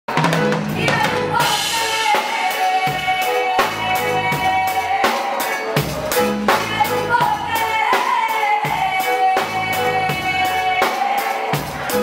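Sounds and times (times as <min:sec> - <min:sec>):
reggae band music: 0:00.1 - 0:12.0.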